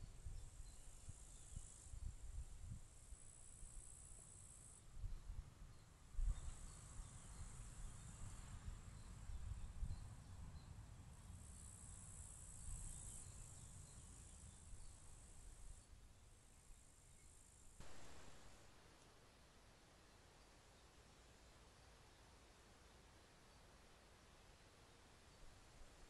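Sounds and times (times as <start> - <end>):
insects buzzing: 3.0 - 19.0.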